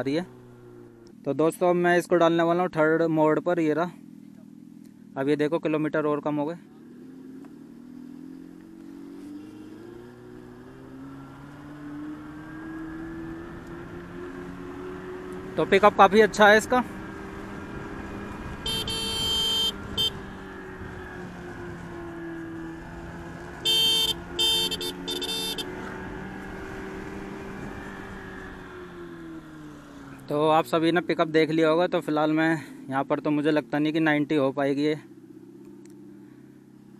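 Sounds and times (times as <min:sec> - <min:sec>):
electric motorcycle engine sound rising: 0:08.0 - 0:15.6, 0:16.9 - 0:30.3
motorcycle horn honks: 0:18.5 - 0:20.4, 0:23.6 - 0:25.8.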